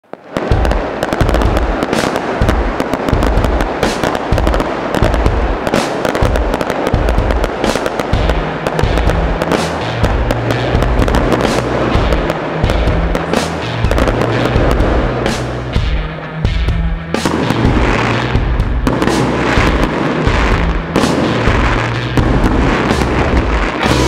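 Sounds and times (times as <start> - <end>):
fireworks crackling and banging: 0.0 - 24.0
low thuds of fireworks: 0.0 - 24.0.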